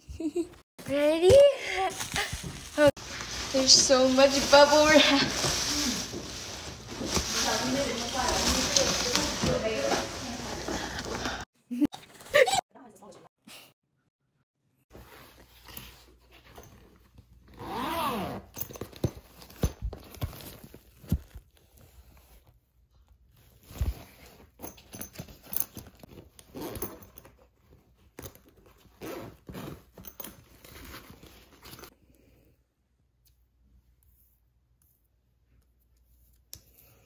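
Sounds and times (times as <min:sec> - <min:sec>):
fabric rustling: 0:01.7 - 0:11.5
zipper opening: 0:17.4 - 0:19.0, 0:23.6 - 0:27.4, 0:28.2 - 0:31.9.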